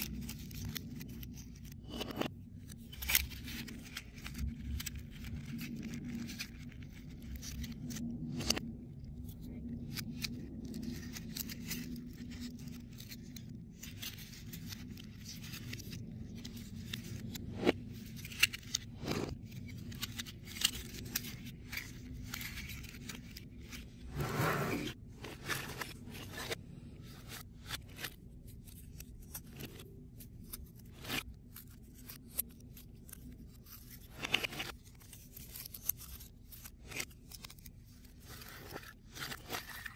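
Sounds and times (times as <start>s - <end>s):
rustling scrape: 10.3s - 28.2s.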